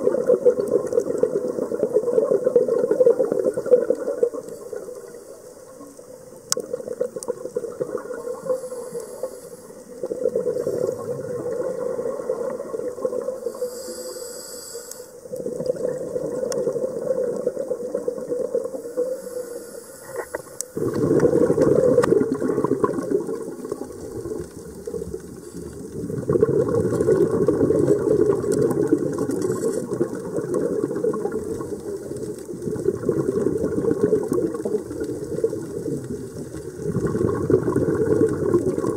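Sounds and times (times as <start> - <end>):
diver exhaling bubbles: 0.0 - 5.1, 6.6 - 14.1, 15.2 - 19.1, 20.0 - 38.9
regulator inhalation: 8.2 - 11.2, 13.3 - 15.3, 18.7 - 21.6.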